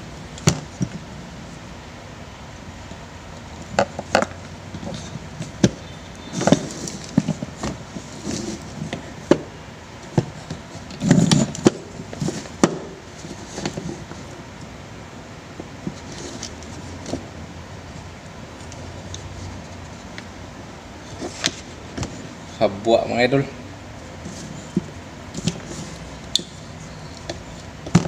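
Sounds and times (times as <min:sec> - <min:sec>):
rustling and scraping: 0:03.6 - 0:09.4, 0:10.0 - 0:14.5, 0:15.6 - 0:17.3, 0:17.9 - 0:20.3, 0:21.0 - 0:22.6, 0:24.0 - 0:28.0.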